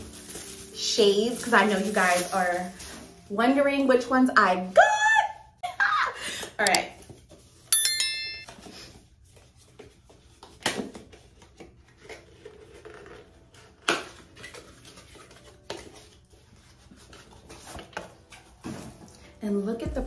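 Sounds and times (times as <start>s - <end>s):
bright electronic chime: 7.7s - 8.5s.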